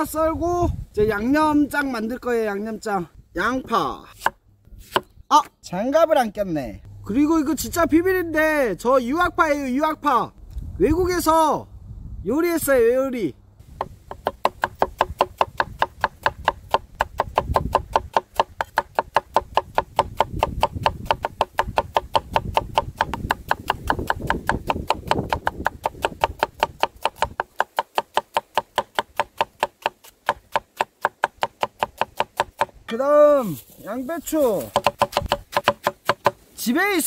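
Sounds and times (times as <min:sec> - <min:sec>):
cleaver chopping on wooden board: 0:04.2 - 0:05.1, 0:13.7 - 0:33.0, 0:34.6 - 0:36.4
low rumble: 0:06.8 - 0:08.7.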